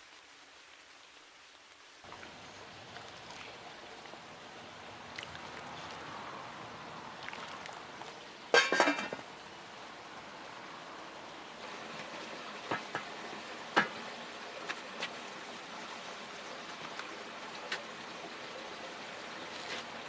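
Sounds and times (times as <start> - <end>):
soup bubbling in pot: 2.1 - 14.0
metal pot lid clinking: 8.6 - 9.3.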